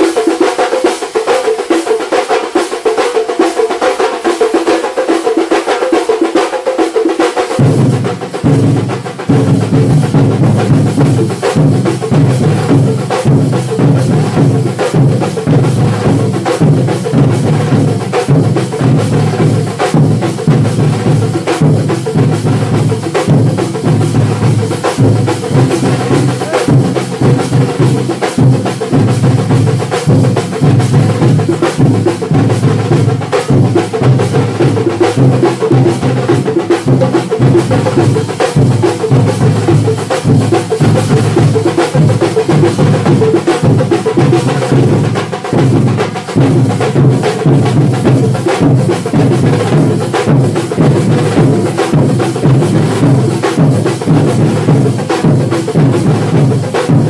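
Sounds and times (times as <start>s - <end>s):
drums played with sticks: 0.0s - 57.0s
deep drums: 7.5s - 57.0s.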